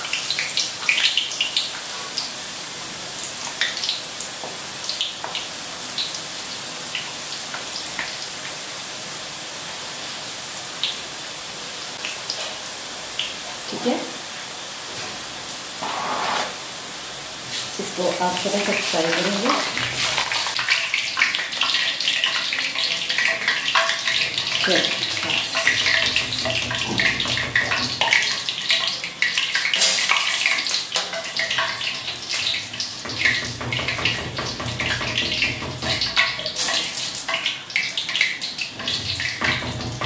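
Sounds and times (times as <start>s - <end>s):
batter sizzling in hot oil: 0.0s - 40.0s
metal skimmer scraping pan: 15.8s - 16.7s.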